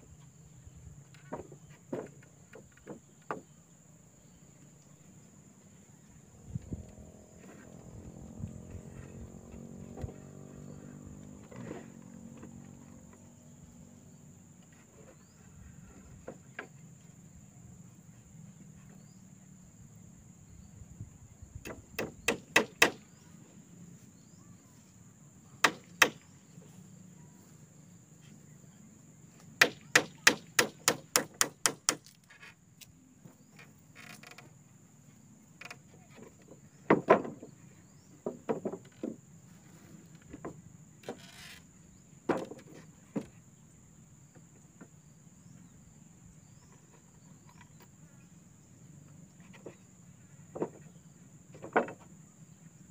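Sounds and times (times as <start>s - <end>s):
hand tool striking wood: 21.7s - 23.0s, 25.6s - 26.2s, 29.6s - 32.2s.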